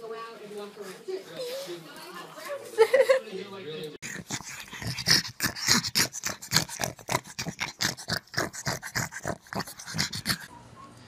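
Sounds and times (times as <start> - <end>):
dogs breathing and grunting: 4.0 - 10.5.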